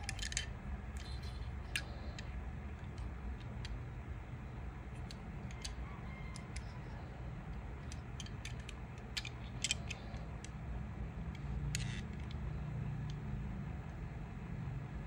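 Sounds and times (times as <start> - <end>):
fingers clicking on toy car: 0.0 - 3.8, 4.9 - 10.6
low steady hum: 0.0 - 15.0.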